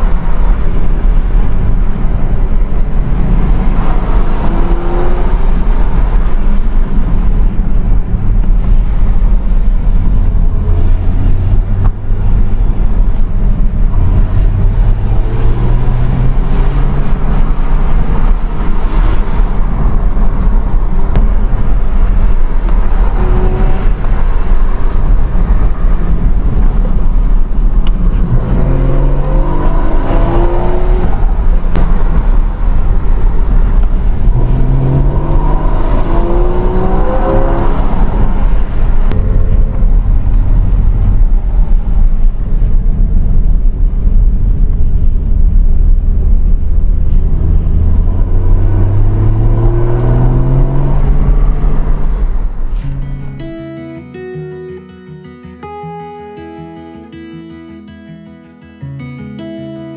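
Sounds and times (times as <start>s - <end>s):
car engine and tyre drone: 0.0s - 53.8s.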